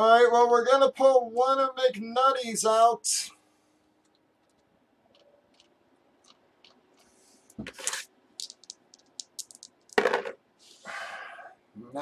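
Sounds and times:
small ticks: 4.0s - 7.1s
die clattering on cardboard: 7.6s - 10.4s.

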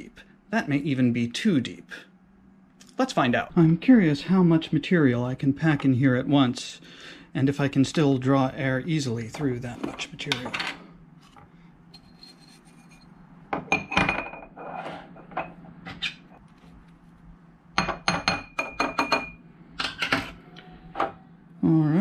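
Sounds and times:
faint ringing glass: 11.9s - 14.5s.

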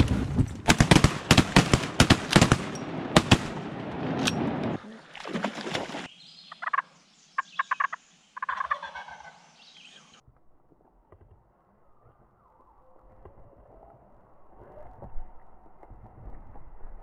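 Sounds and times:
shotgun shots: 0.6s - 4.6s.

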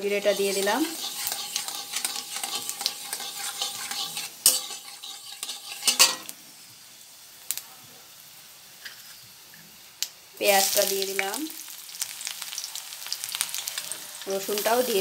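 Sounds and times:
chillies sizzling in hot oil: 0.0s - 15.0s
metal spatula scraping a pan: 0.1s - 6.3s.

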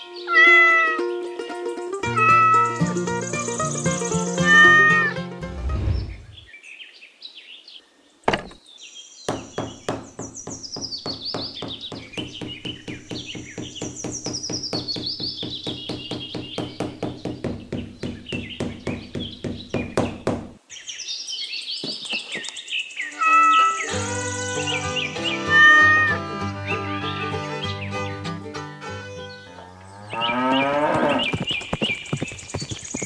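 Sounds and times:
birds chirping: 2.0s - 33.0s
music with fast knocking beat: 10.5s - 19.7s.

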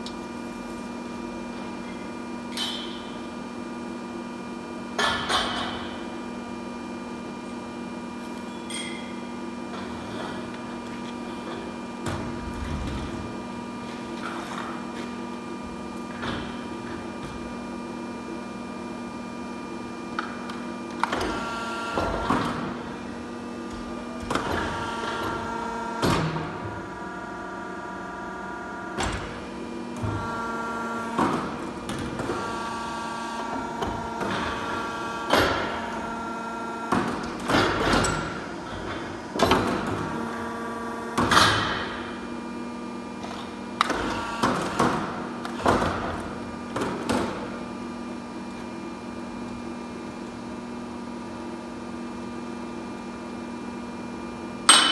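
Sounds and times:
pipe-bending machine hum: 0.0s - 54.9s
sharp metallic clanks: 54.7s - 54.9s.

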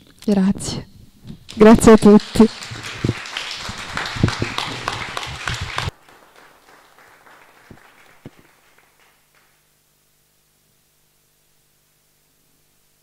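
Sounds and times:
audience applauding: 1.5s - 9.6s.

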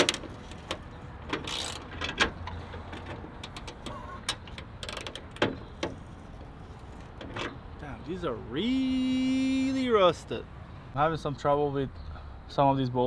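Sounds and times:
ratchet wrench clicking: 1.4s - 1.9s.

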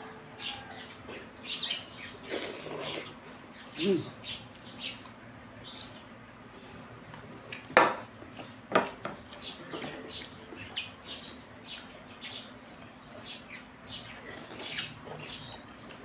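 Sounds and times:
man chewing: 2.2s - 3.4s, 14.2s - 16.0s.

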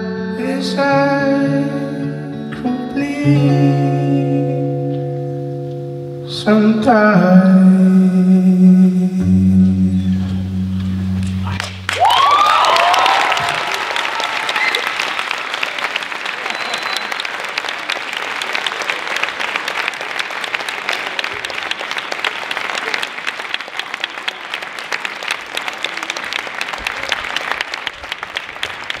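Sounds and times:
audience applauding: 11.5s - 29.0s.

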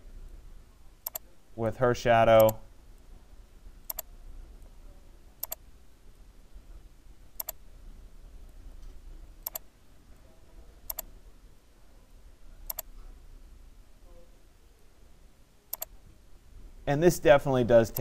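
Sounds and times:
low steady hum: 0.0s - 18.0s
computer mouse clicking: 1.0s - 1.3s, 3.9s - 4.1s, 5.4s - 5.6s, 7.4s - 7.6s, 9.4s - 9.7s, 10.9s - 11.1s, 12.7s - 12.9s, 15.7s - 16.0s.

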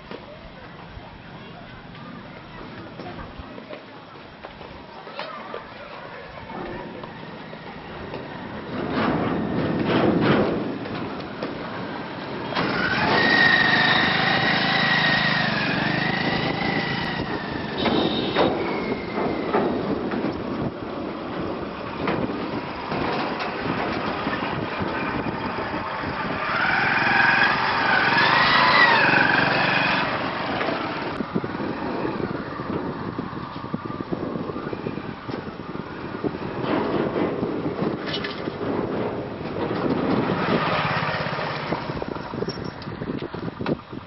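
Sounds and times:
motorcycle engines running: 6.7s - 44.0s.

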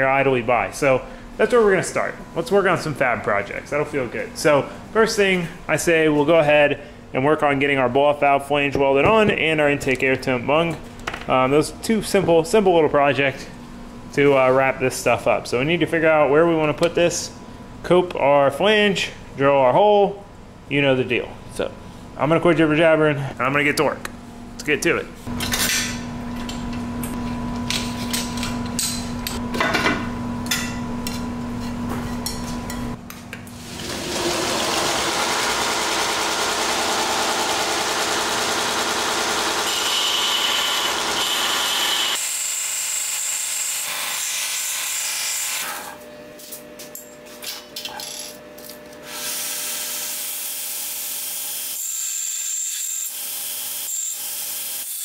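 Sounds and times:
belt grinder grinding metal: 34.1s - 44.3s.

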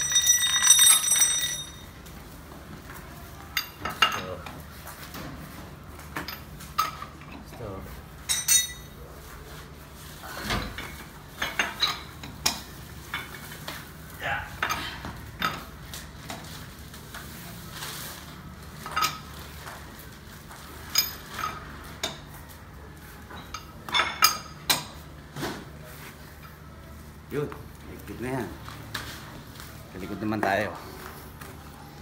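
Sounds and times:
lug nuts and wrench clinking: 0.0s - 2.0s, 6.2s - 7.6s, 8.2s - 9.0s, 10.7s - 13.8s, 18.8s - 19.4s, 23.4s - 25.0s.

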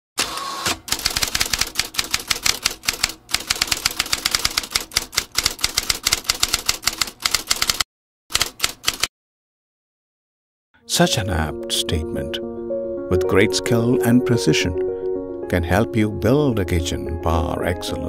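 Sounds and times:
typewriter keys clacking: 0.8s - 9.1s.

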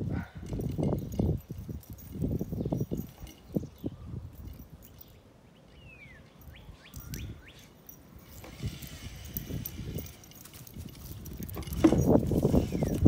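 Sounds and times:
birds chirping: 2.4s - 10.4s, 12.0s - 13.0s
rustling: 6.9s - 13.0s.

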